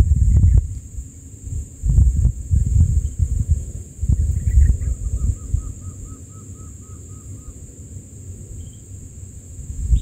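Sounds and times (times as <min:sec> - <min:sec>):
wind buffeting microphone: 0:00.0 - 0:06.4, 0:09.6 - 0:10.0
steady high hiss: 0:00.0 - 0:10.0.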